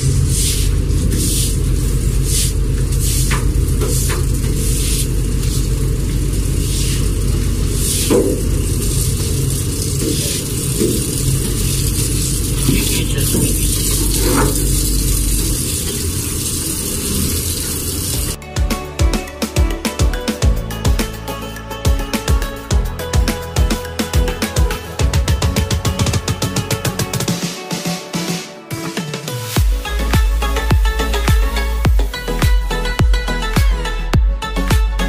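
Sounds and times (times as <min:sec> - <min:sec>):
deck machinery rumble: 0:00.0 - 0:18.4.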